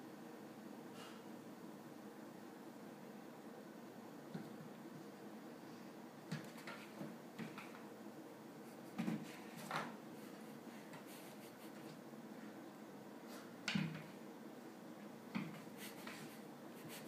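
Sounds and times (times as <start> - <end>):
cat paws thumping and scraping: 6.3 - 7.8, 8.9 - 10.0.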